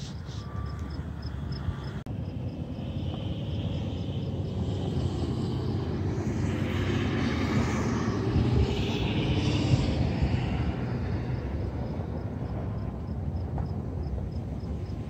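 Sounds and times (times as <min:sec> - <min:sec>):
engine drone: 0:00.0 - 0:15.0
low rumble: 0:00.0 - 0:15.0.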